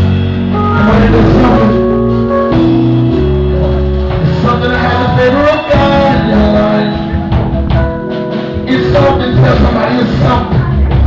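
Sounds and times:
deep bass notes: 0:00.0 - 0:11.0
guitar: 0:00.0 - 0:11.0
man singing into microphone: 0:00.6 - 0:01.9, 0:04.2 - 0:07.3, 0:08.6 - 0:10.9.

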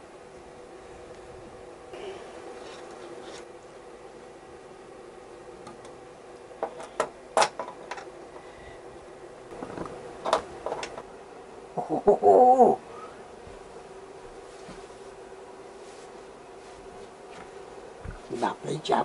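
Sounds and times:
short wavering voice: 0:11.8 - 0:13.0.

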